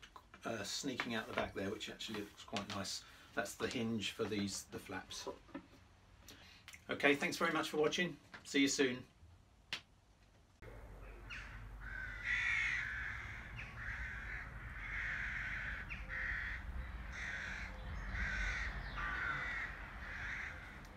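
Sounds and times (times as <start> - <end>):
low outdoor rumble: 10.6 - 20.9
crows cawing: 11.0 - 20.9.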